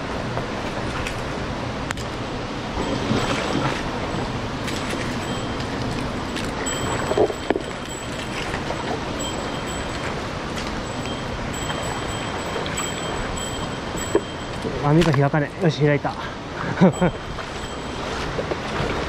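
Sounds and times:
mountain stream rushing: 0:00.0 - 0:19.0.

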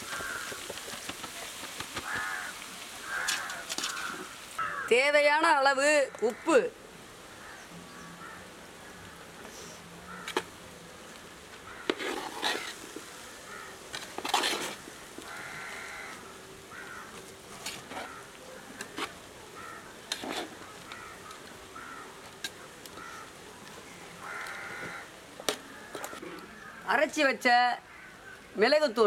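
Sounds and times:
crows cawing: 0:00.0 - 0:00.9, 0:02.0 - 0:05.0, 0:06.1 - 0:06.7, 0:07.3 - 0:10.5, 0:11.6 - 0:13.8, 0:15.2 - 0:23.4, 0:24.1 - 0:27.0, 0:27.8 - 0:28.5
food rustling in metal pot: 0:00.0 - 0:04.8, 0:09.5 - 0:26.9.

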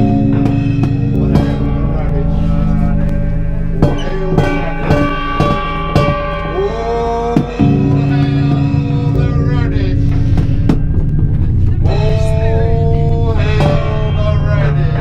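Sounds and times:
droning noise music: 0:00.0 - 0:15.0.

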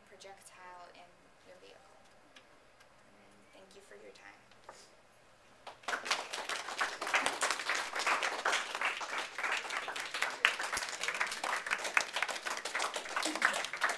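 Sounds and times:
audience clapping: 0:05.6 - 0:13.9.

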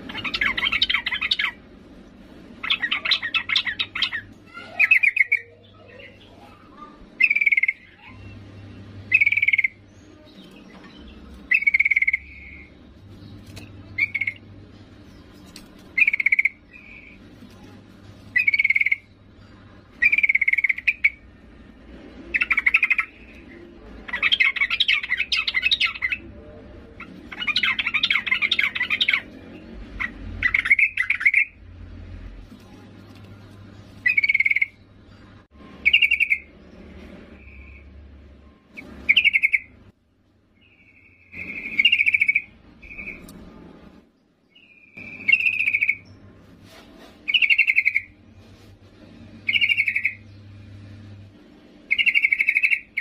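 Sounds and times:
bird chattering: 0:00.0 - 0:01.7, 0:02.6 - 0:08.4, 0:09.0 - 0:12.8, 0:13.6 - 0:17.4, 0:18.3 - 0:21.3, 0:22.3 - 0:31.6, 0:33.3 - 0:36.5, 0:38.7 - 0:39.8, 0:40.6 - 0:43.3, 0:44.5 - 0:46.2, 0:47.2 - 0:48.2, 0:49.4 - 0:50.3, 0:51.9 - 0:53.0
bird calling sharp notes: 0:51.9 - 0:53.0.

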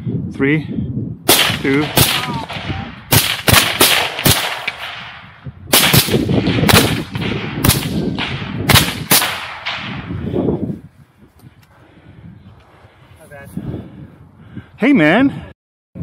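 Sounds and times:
suppressed rifle shots: 0:01.3 - 0:10.1.

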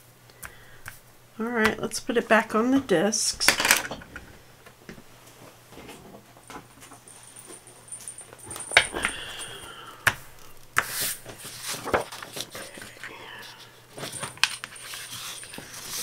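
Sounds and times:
paper pages rustling: 0:10.8 - 0:16.0.

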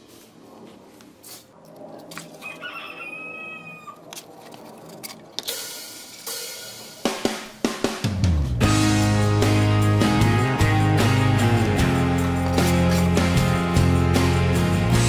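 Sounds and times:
rooster crowing: 0:02.3 - 0:04.0
guitar background music: 0:08.3 - 0:15.0.

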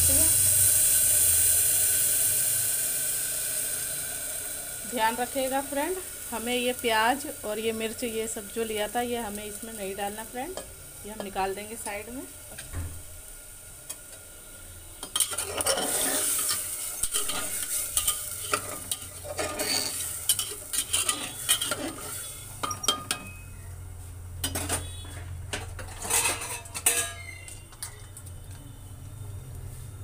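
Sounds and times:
ladle scraping metal pot: 0:15.0 - 0:23.4, 0:25.6 - 0:28.1.

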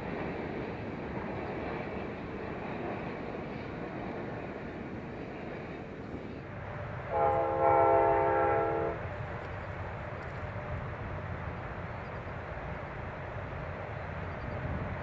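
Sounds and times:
locomotive air horn blast: 0:07.1 - 0:09.0.

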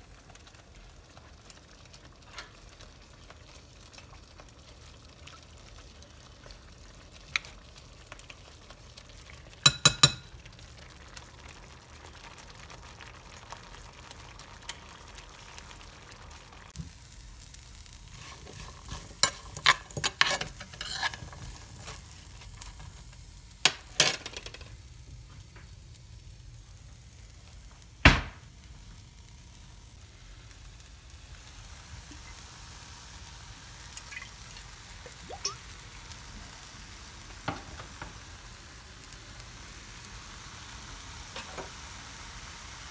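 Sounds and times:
vegetables sizzling in a pan: 0:00.0 - 0:42.9
utensil knocking against pan: 0:09.7 - 0:10.2.

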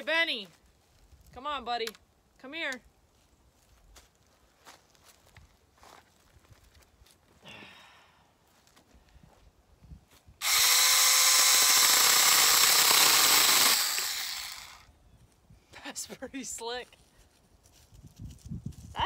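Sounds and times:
electric chainsaw cutting branch: 0:10.4 - 0:14.9.

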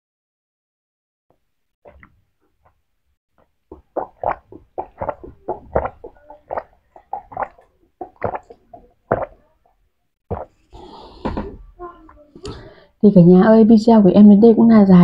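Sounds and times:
person gulping swallows: 0:03.6 - 0:09.6, 0:10.3 - 0:11.7.

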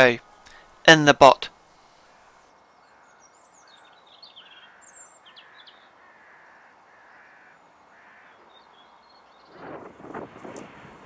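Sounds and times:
small birds chirping: 0:00.0 - 0:09.8
distant crows cawing: 0:01.5 - 0:09.5.

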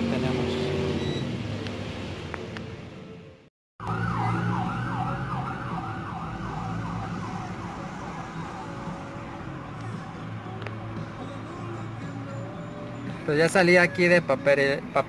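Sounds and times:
electronic siren wail: 0:03.8 - 0:10.3.

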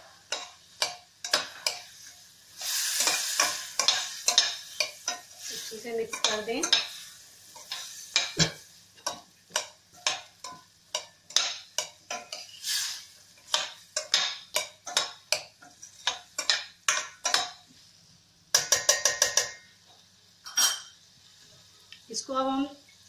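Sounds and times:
metal ladle scraping a pan: 0:01.2 - 0:08.6, 0:11.3 - 0:16.6.

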